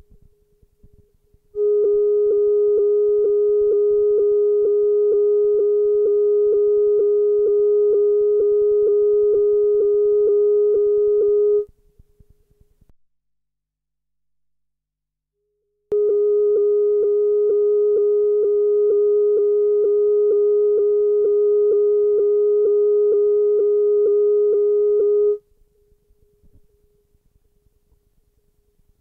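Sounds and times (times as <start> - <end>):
faint low noise: 0.0 - 12.9, 15.9 - 29.0.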